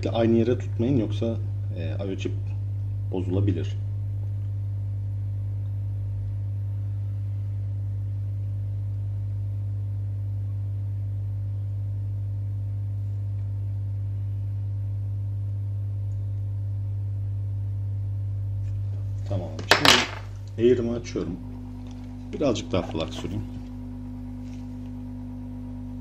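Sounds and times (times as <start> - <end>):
hot air station humming: 20.4 - 26.0.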